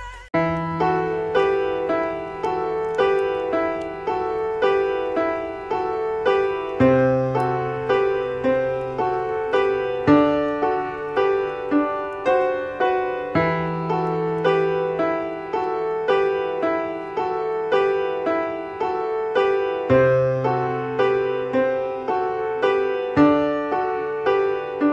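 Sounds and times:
gentle piano music: 0.0s - 24.9s.

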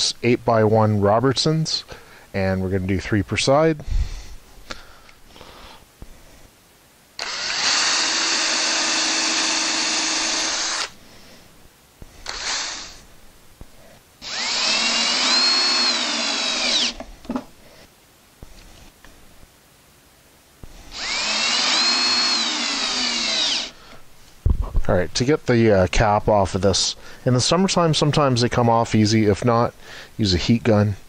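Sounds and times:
cordless drill motor whine: 7.2s - 11.0s, 12.2s - 13.0s, 14.2s - 17.0s, 20.9s - 23.8s.

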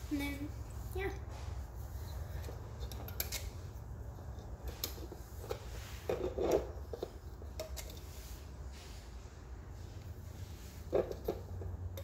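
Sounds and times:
rustle: 4.6s - 12.0s.

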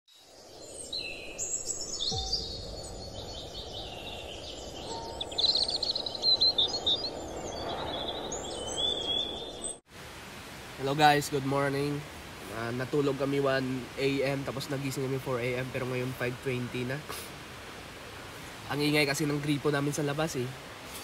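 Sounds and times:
birds chirping and trilling: 0.1s - 9.8s
steady background hiss: 8.4s - 21.0s.

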